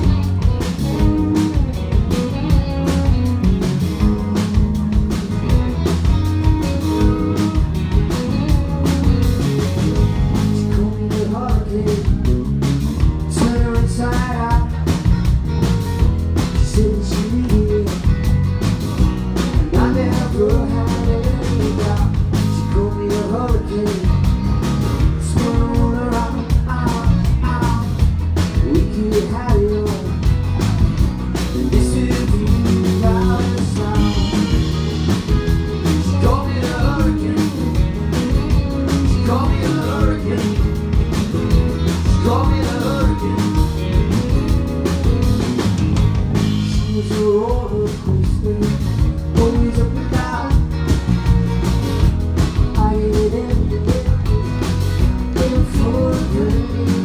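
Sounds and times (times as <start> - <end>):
electric guitar: 0.0 - 57.0
keyboards: 0.0 - 57.0
steady drum beat: 0.0 - 57.0
man singing: 10.1 - 15.4, 16.4 - 18.5, 19.4 - 30.4, 31.4 - 34.9, 35.7 - 44.7, 46.6 - 51.1, 52.6 - 57.0.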